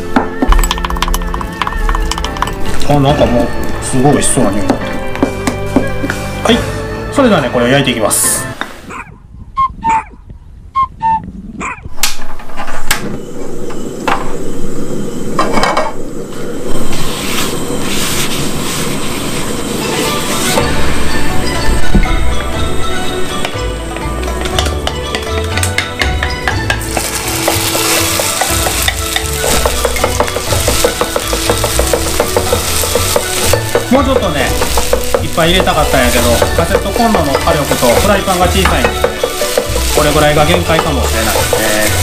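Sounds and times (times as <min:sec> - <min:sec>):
background music: 0:00.0 - 0:08.9, 0:19.5 - 0:42.0
dog yipping: 0:08.8 - 0:09.2, 0:09.8 - 0:10.2, 0:11.6 - 0:12.0
rice sizzling in a pan: 0:26.5 - 0:42.0
spatula scraping a pan: 0:26.9 - 0:33.9, 0:34.5 - 0:42.0.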